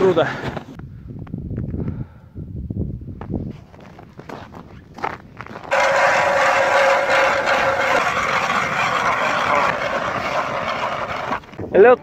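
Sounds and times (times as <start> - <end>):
ice auger grinding into ice: 5.5 - 11.7.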